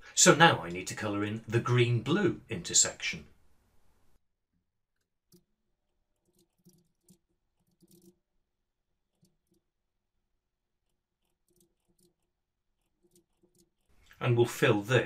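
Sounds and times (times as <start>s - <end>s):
keyboard typing: 6.1s - 8.2s, 11.2s - 13.9s.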